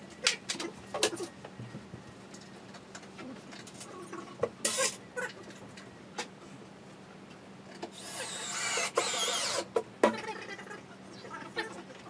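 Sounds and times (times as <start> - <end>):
cordless drill whirring: 7.9 - 9.7.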